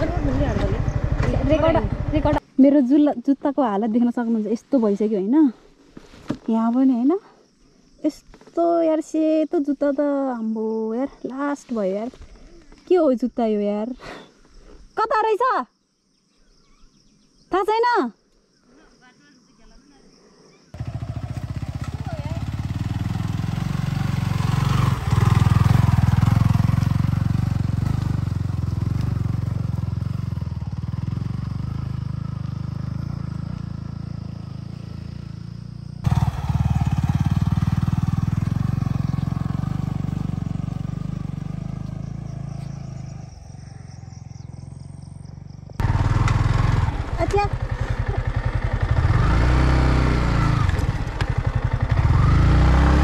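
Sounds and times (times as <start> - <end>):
motorcycle engine running: 0.0 - 2.4, 20.8 - 53.0.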